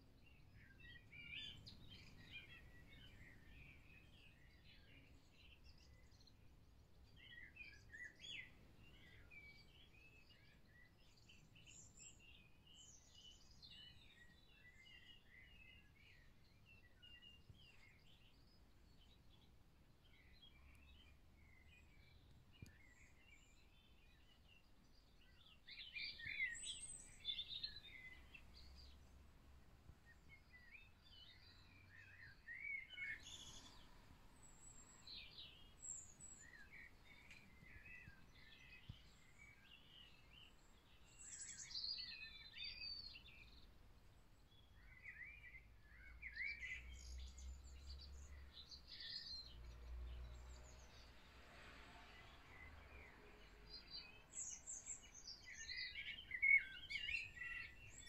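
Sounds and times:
birds chirping and whistling: 0:54.4 - 0:58.0.

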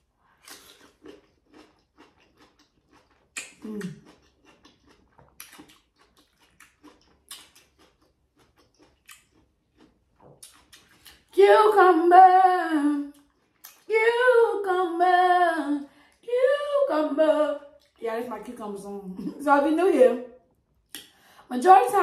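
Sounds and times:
crunching and chewing cucumber: 0:00.3 - 0:11.4, 0:13.1 - 0:13.9
person humming mm: 0:03.6 - 0:04.0.

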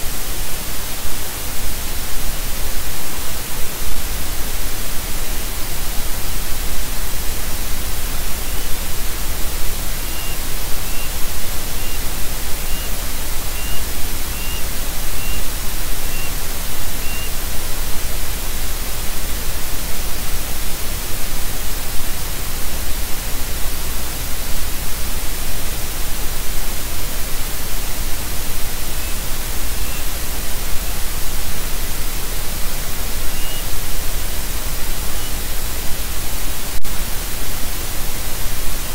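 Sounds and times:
static hiss: 0:00.0 - 0:38.9
bird chirping: 0:10.0 - 0:12.9, 0:13.5 - 0:16.3, 0:17.0 - 0:17.3, 0:29.8 - 0:30.1, 0:33.3 - 0:33.6.

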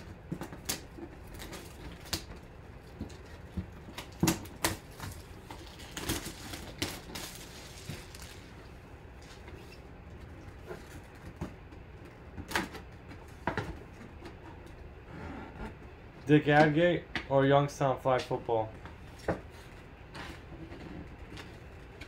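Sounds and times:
plastic wrap tearing and crinkling: 0:00.4 - 0:08.7.

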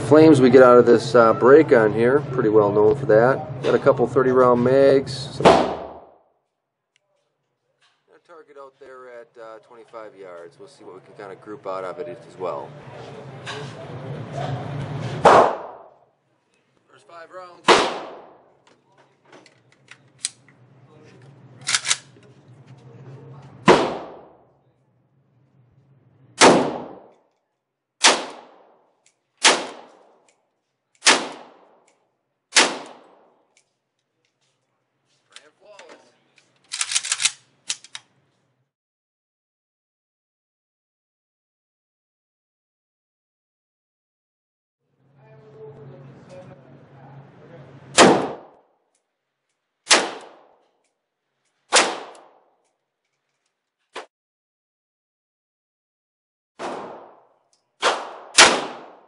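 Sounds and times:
rifle shots indoors: 0:05.4 - 0:06.3, 0:15.2 - 0:16.0, 0:17.6 - 0:18.6, 0:21.6 - 0:22.1, 0:23.6 - 0:24.6, 0:26.4 - 0:27.3, 0:28.0 - 0:30.3, 0:31.0 - 0:33.6, 0:36.7 - 0:38.1, 0:47.9 - 0:48.6, 0:49.8 - 0:52.8, 0:56.6 - 0:59.0.

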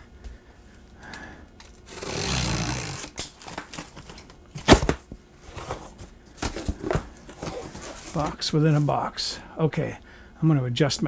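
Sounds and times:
box cutter slicing tape: 0:01.9 - 0:05.0
cardboard flaps rustling: 0:03.5 - 0:09.0.

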